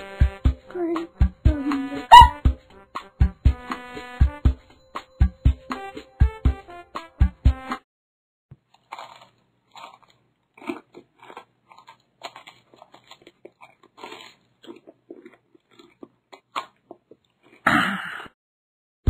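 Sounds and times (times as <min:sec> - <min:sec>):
chewing and crunching: 0:08.6 - 0:17.7.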